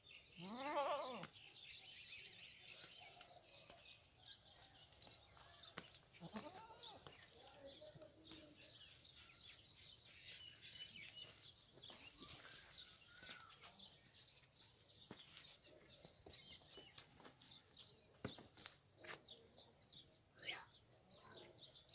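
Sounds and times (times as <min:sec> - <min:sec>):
small birds chirping: 0:00.0 - 0:21.9.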